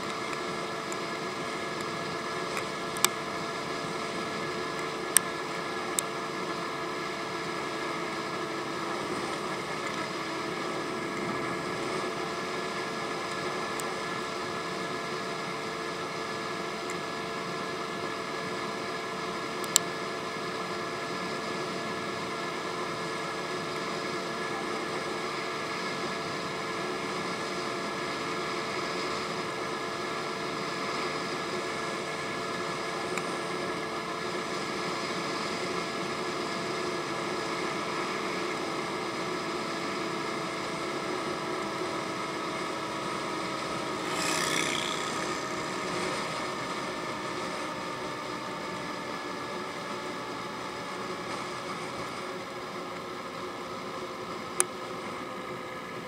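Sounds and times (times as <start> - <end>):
scooter engine droning: 42.2 - 48.4
wind and road noise: 42.4 - 48.0.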